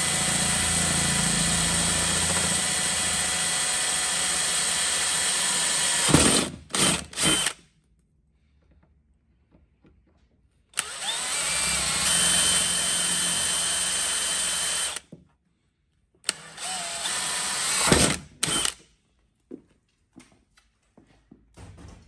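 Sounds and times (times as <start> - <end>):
drill whining through metal: 0.0 - 7.6, 10.8 - 15.1, 16.2 - 18.8.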